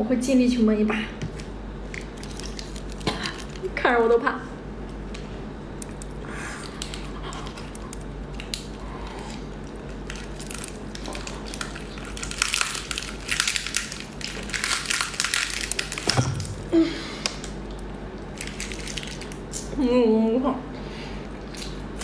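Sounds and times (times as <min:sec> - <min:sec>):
crunching shell-on seafood: 0:01.9 - 0:03.8, 0:05.8 - 0:19.7.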